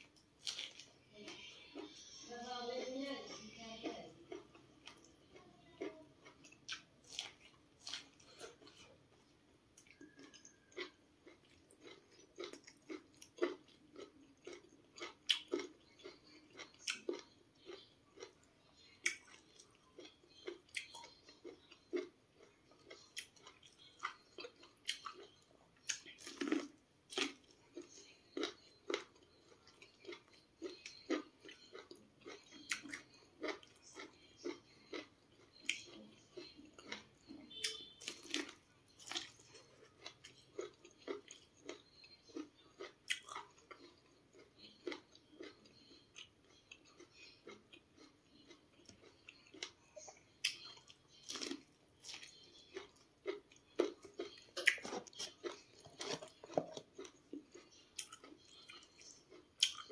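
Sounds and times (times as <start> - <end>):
person chewing corn: 0.0 - 2.3, 3.2 - 59.9.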